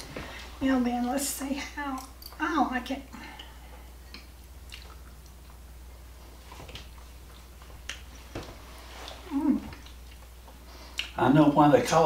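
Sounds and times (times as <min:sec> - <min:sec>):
low steady hum: 0:00.0 - 0:12.0
quiet chewing: 0:03.2 - 0:11.2.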